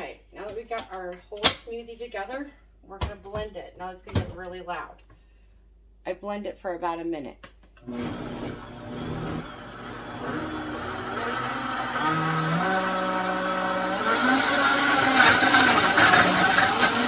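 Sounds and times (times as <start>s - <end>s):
blender motor whining: 7.8s - 17.0s.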